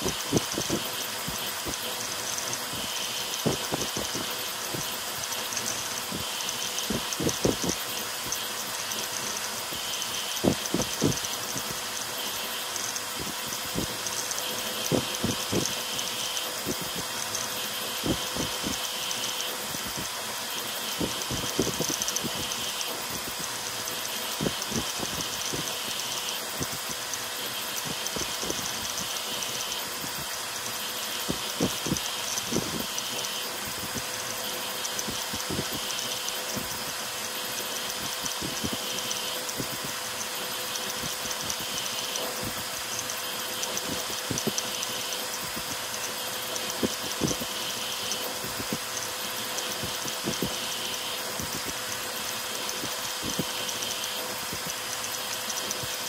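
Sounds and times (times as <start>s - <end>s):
cooling blower hiss: 0.0s - 56.0s
three d printer whirring: 0.0s - 56.0s.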